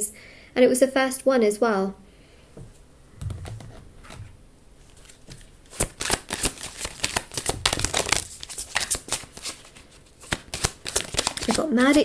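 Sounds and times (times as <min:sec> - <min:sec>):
cards being shuffled: 0:03.2 - 0:12.0.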